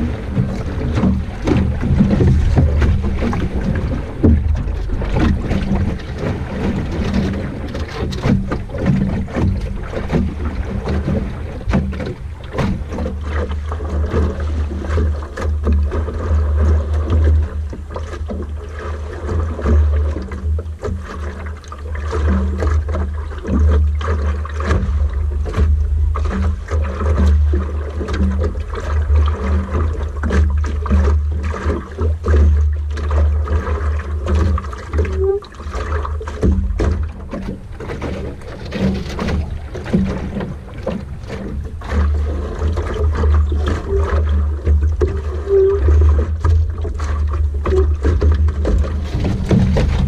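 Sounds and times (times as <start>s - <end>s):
wind buffeting microphone: 0.0s - 14.8s
water slapping against hull: 0.0s - 50.0s.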